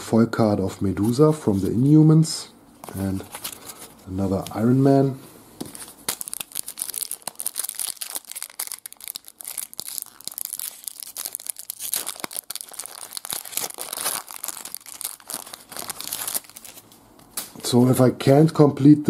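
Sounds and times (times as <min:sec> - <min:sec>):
foil wrapper crinkling and tearing: 0:05.7 - 0:17.5.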